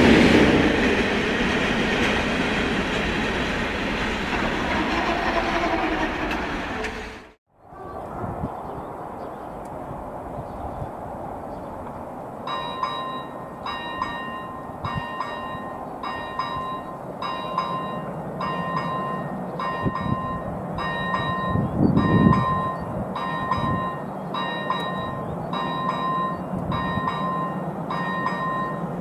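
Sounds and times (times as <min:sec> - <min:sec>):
level-crossing bell dinging: 0:12.5 - 0:29.0.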